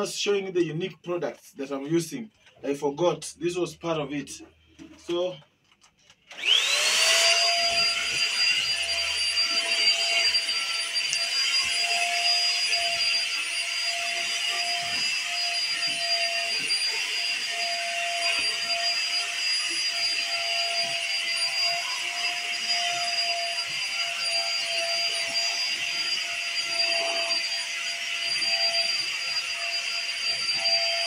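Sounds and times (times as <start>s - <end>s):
vacuum cleaner running on carpet: 6.3s - 31.0s.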